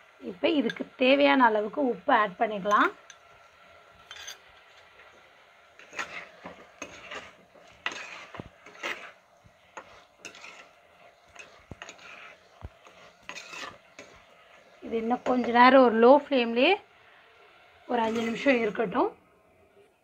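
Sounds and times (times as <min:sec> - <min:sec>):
spoon scraping clay pot: 0:04.0 - 0:05.2, 0:05.8 - 0:15.7, 0:18.0 - 0:18.8.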